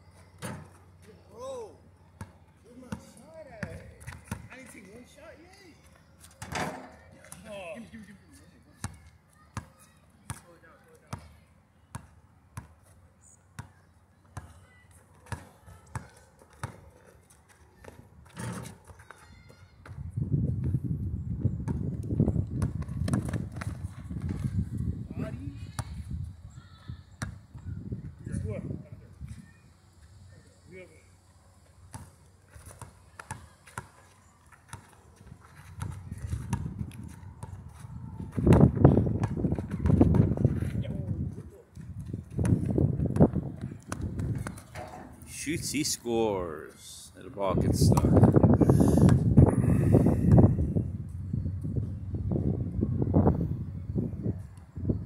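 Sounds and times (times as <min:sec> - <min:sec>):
basketball bouncing on asphalt: 0:02.2 - 0:04.5, 0:11.1 - 0:12.7, 0:13.6 - 0:16.8, 0:21.6 - 0:24.9, 0:27.2 - 0:27.8, 0:34.7 - 0:40.7, 0:41.8 - 0:44.8, 0:47.9 - 0:48.4, 0:49.0 - 0:49.4.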